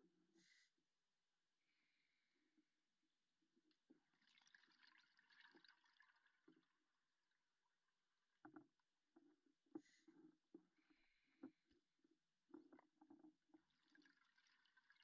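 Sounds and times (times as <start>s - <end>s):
faint clicks and knocks: 8.2s - 14.1s.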